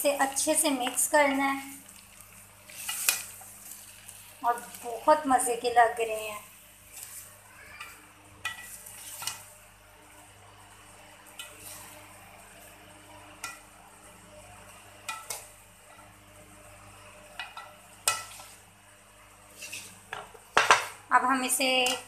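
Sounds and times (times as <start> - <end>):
spoon stirring rice: 6.9 - 9.5, 17.2 - 18.6, 19.5 - 20.8.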